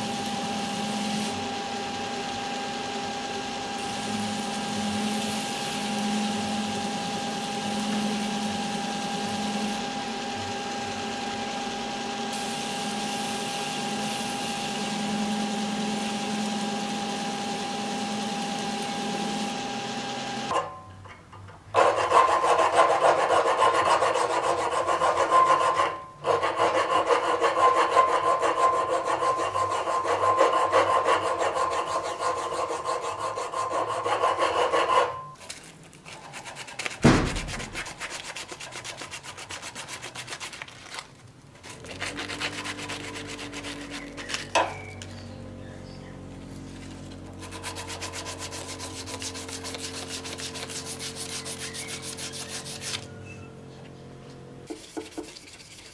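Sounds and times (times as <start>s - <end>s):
hand file rasping on steel: 21.8s - 35.2s, 41.6s - 44.5s, 47.4s - 53.1s, 54.7s - 55.9s
light filing rub: 21.8s - 35.3s, 36.0s - 41.0s, 41.6s - 44.5s, 46.6s - 53.4s, 54.7s - 55.9s
thud: 37.0s - 37.8s.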